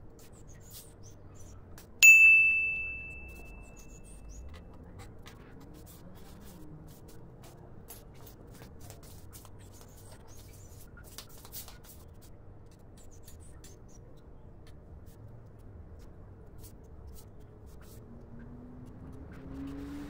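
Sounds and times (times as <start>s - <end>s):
bell-like ding: 2.0s - 4.0s.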